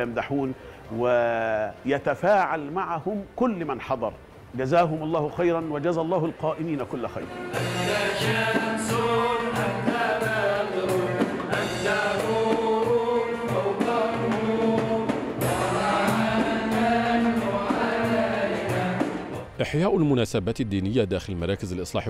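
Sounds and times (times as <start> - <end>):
keyboard accompaniment: 5.6 - 19.6
frame drums beating: 7.3 - 19.5
male group singing in chorus: 7.3 - 19.5.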